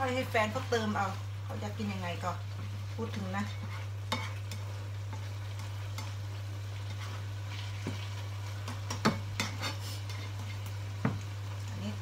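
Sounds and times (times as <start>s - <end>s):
meat sizzling in frying pan: 0.0s - 12.0s
spatula stirring and scraping: 2.6s - 10.8s.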